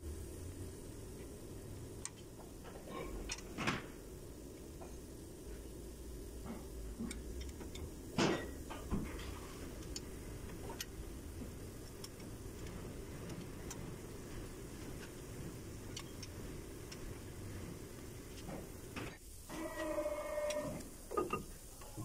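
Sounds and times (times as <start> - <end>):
metal clank: 8.1 - 9.4.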